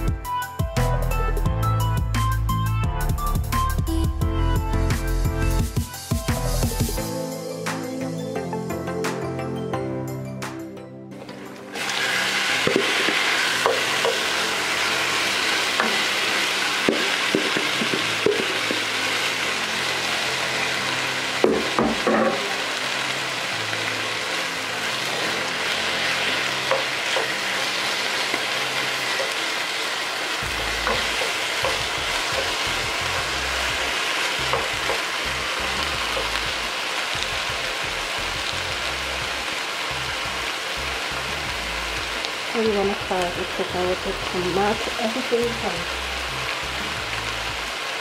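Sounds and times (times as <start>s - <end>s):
chicken sizzling in hot oil: 11.4s - 48.0s
knocks in pan: 16.9s - 18.8s, 21.4s - 22.5s.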